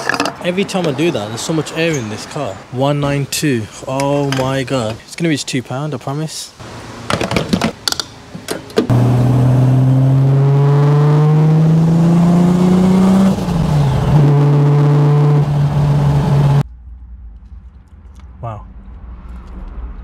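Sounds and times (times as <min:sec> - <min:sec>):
car engine revving: 0:08.9 - 0:16.7.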